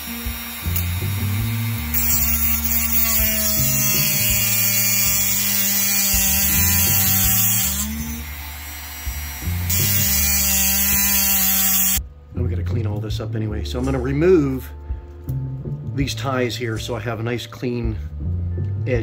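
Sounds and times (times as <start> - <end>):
grinding hiss cutting metal: 0.0 - 12.0
rotary tool whining: 0.0 - 12.0.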